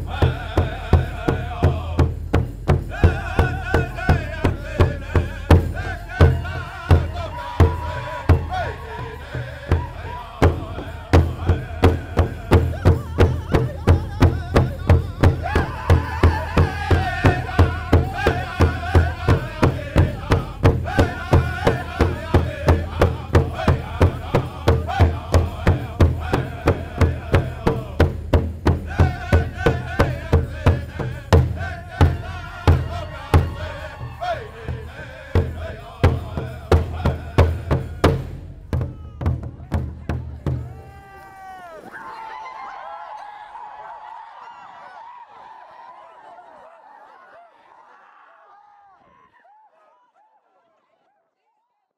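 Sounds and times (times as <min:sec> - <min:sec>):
men singing in wavering voices: 0:00.0 - 0:38.4
big drum beat: 0:00.0 - 0:41.2.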